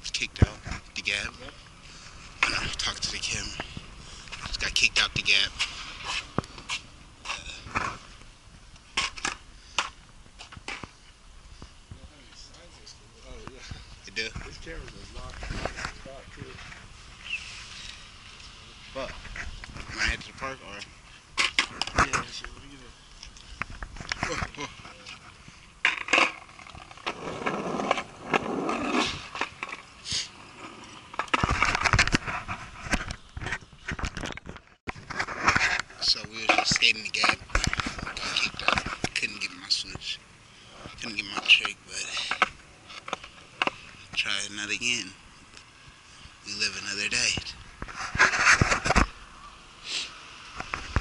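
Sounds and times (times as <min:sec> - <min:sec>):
rustling clicks and scrapes: 0:14.2 - 0:18.0, 0:19.0 - 0:40.0, 0:47.2 - 0:49.2
microphone rubbing on fabric: 0:47.8 - 0:49.1.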